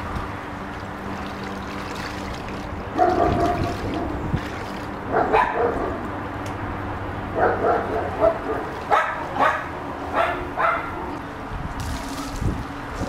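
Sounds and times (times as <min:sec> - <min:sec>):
small dog barking: 0:05.1 - 0:06.0, 0:07.4 - 0:11.0.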